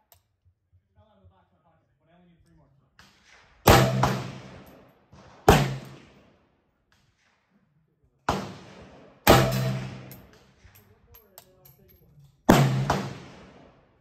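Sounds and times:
rifle shots: 3.0 - 6.4, 8.3 - 10.9, 12.5 - 14.0.

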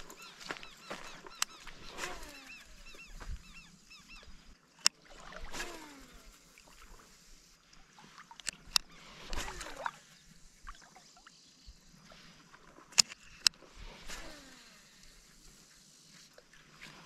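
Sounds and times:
birds chirping: 0.0 - 4.6.

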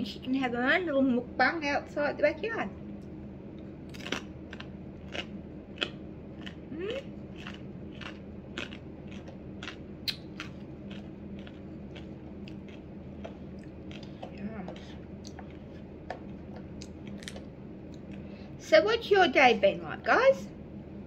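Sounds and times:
low hum: 0.0 - 21.0
crunchy chewing: 3.0 - 18.3.

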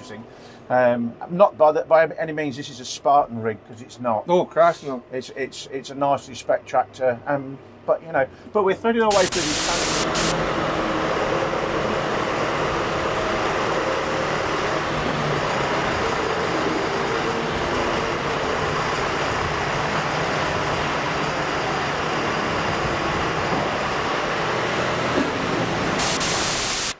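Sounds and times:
diesel tractor engine running: 9.1 - 26.9.

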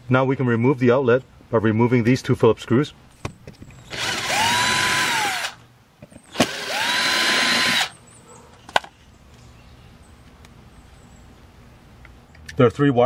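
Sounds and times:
cordless drill whining: 3.9 - 5.6, 6.3 - 7.9.

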